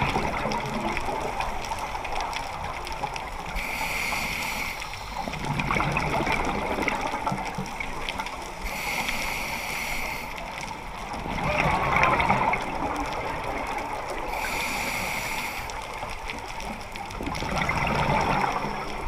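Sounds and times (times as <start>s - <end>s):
gurgling exhaled bubbles: 0.0s - 3.8s, 5.2s - 8.6s, 10.7s - 14.8s, 15.9s - 19.0s
regulator inhalation hiss: 3.6s - 5.3s, 8.6s - 10.4s, 14.3s - 15.8s.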